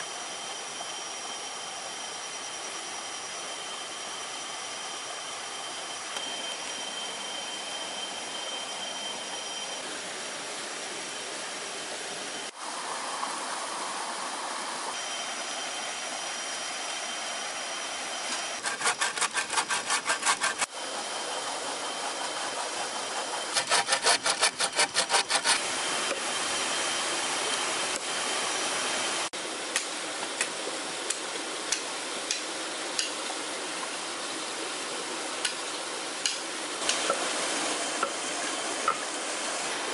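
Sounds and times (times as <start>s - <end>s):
saw cutting wood: 18.2s - 26.3s.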